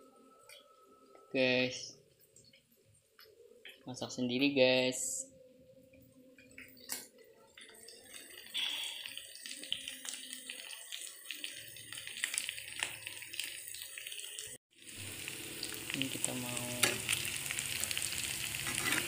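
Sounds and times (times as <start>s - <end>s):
food sizzling in a frying pan: 6.7s - 19.0s.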